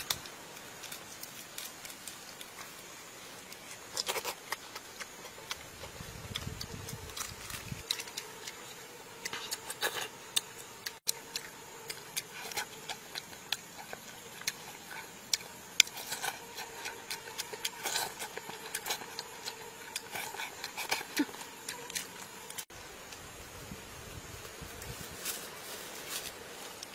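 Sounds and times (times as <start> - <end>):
faint steady hum: 0.0 - 26.9
chewing and lip-smacking: 3.5 - 8.6, 9.2 - 22.6.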